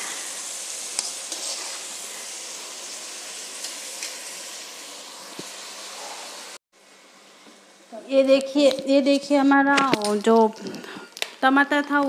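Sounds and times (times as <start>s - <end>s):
onions sizzling in hot oil: 0.0s - 12.0s.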